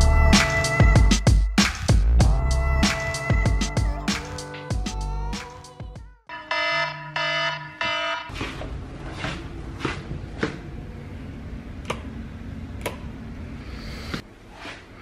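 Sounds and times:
phone alarm tone pulses: 0:06.3 - 0:08.3.

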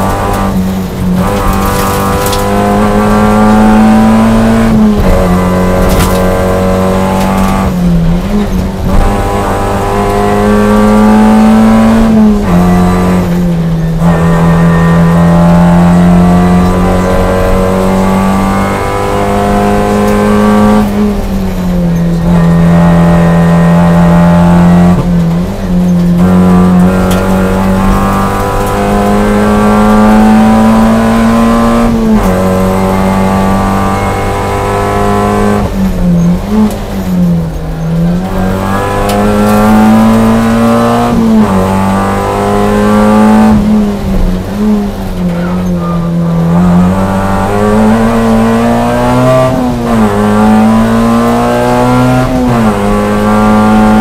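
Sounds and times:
rally car engine revving: 0:00.0 - 0:54.0.

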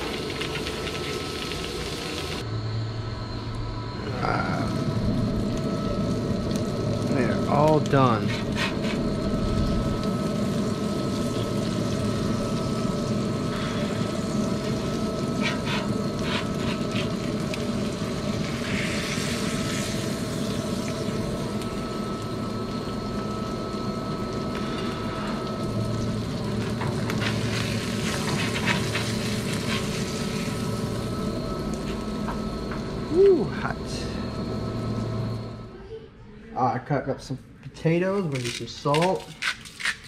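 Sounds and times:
fish sizzling on a grill: 0:00.0 - 0:02.4, 0:05.9 - 0:32.0
steady mechanical hum: 0:00.0 - 0:40.0.

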